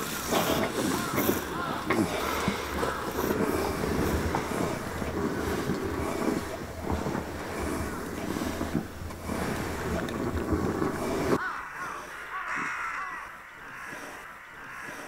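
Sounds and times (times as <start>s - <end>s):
steady low rumble: 0.0s - 11.4s.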